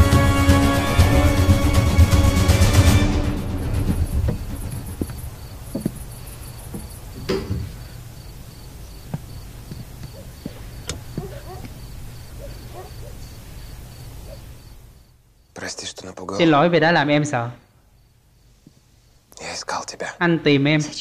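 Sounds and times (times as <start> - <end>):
low hum: 0.3 - 8.9
cricket chirping: 2.4 - 16.5, 17.6 - 19.2
soft knocks and creaks: 3.9 - 8.0.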